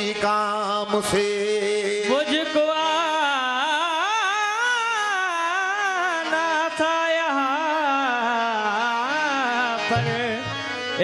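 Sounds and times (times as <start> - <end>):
melismatic singing: 7.8 - 11.0.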